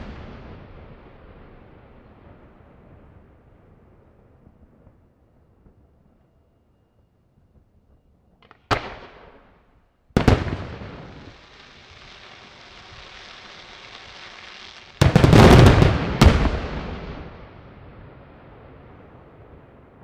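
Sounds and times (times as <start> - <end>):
fireworks bangs: 0.0 - 3.4, 8.4 - 20.0
firework hiss: 11.0 - 17.0.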